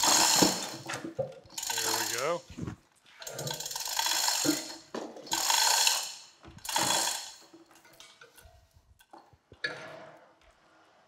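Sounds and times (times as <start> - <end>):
chain hoist ratcheting: 0.0 - 2.4, 3.2 - 8.6.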